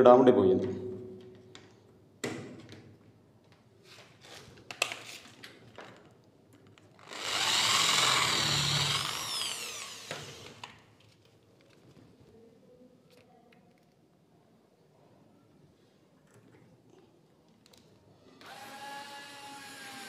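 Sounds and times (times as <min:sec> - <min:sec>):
electric drill whining: 0:07.0 - 0:10.8, 0:18.4 - 0:20.0.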